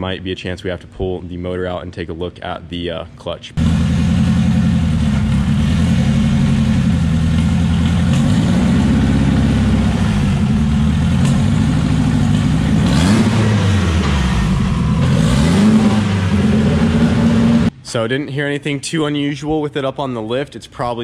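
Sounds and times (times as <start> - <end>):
turbocharged car engine running: 3.6 - 17.7.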